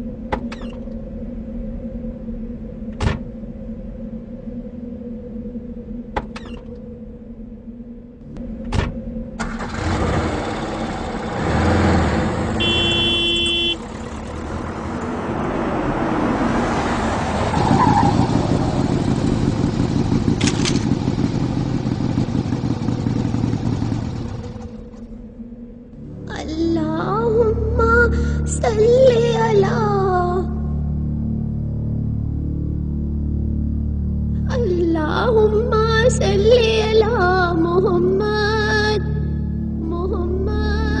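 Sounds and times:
vehicle engine rumble: 0:00.0 - 0:31.4
road noise: 0:08.2 - 0:26.2
brief steady tone: 0:12.6 - 0:13.8.

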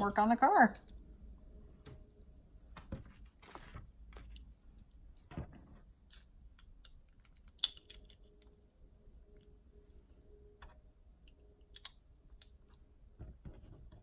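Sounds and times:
plastic bricks clicking together: 0:06.1 - 0:08.5, 0:11.3 - 0:12.8.

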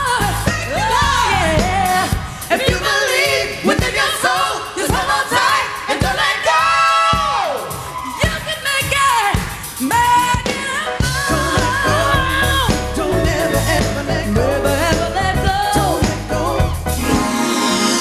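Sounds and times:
woman singing: 0:00.0 - 0:06.4, 0:08.1 - 0:16.6
live band with bass and drums: 0:00.0 - 0:18.0.

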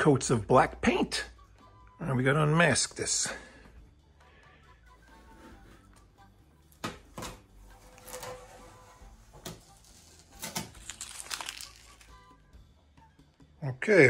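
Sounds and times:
masking tape ripping off: 0:09.6 - 0:12.2.

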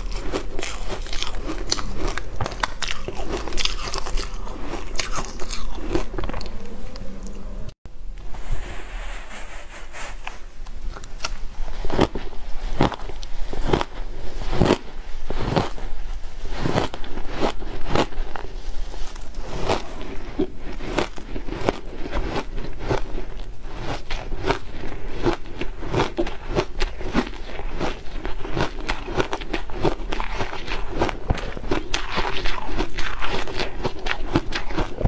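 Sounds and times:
ice crunching between teeth: 0:00.0 - 0:06.6, 0:16.6 - 0:35.0.

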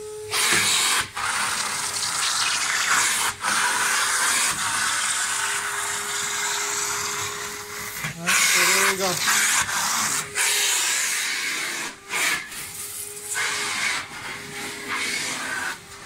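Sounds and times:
vacuum motor tone: 0:00.0 - 0:16.0.

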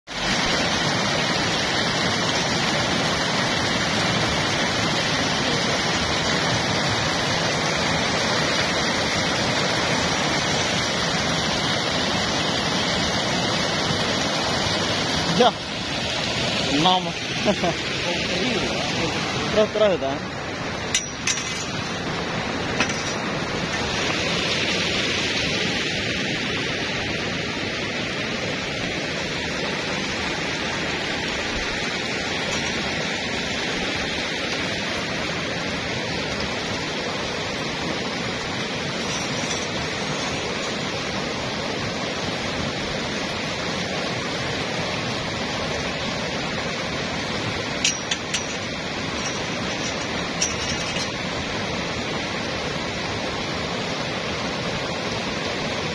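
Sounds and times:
flowing water rushing: 0:00.1 - 0:55.9.

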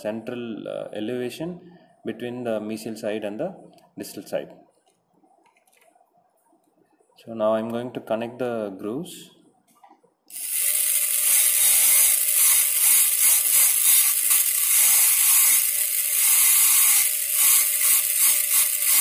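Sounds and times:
dental drill hissing: 0:10.3 - 0:19.0.

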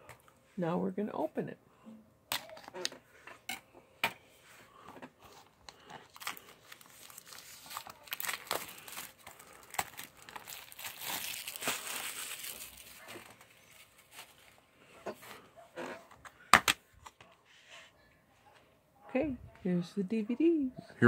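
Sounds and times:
plastic shrink wrap crinkling: 0:05.7 - 0:14.6.

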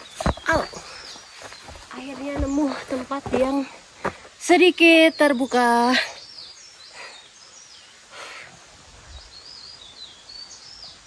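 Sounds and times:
soft rustling: 0:00.0 - 0:04.4.

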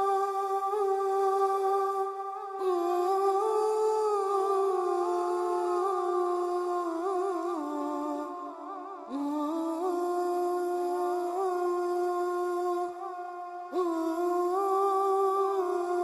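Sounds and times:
person humming a slow melody: 0:13.7 - 0:16.0.

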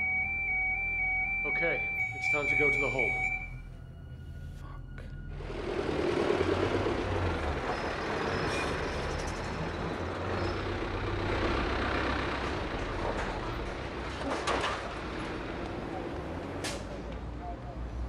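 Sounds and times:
truck engine driving off: 0:05.2 - 0:18.0.

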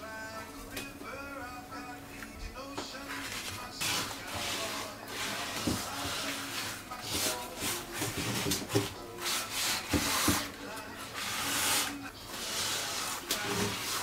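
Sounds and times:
scrubbing paste on a pan: 0:03.0 - 0:14.0.

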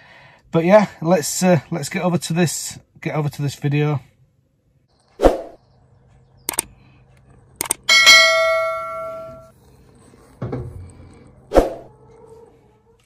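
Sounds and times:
swish: 0:05.2 - 0:05.6, 0:11.5 - 0:11.9
sharp clicks: 0:06.4 - 0:07.9
notification bell chime: 0:07.9 - 0:09.5.

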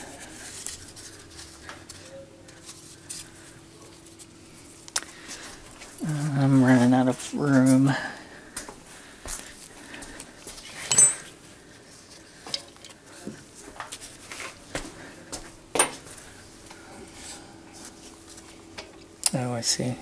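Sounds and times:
metal tools clinking: 0:10.7 - 0:11.4.

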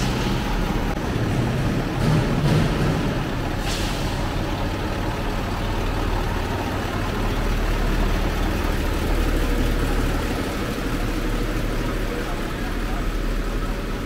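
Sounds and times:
diesel truck engine idling: 0:00.0 - 0:14.0.

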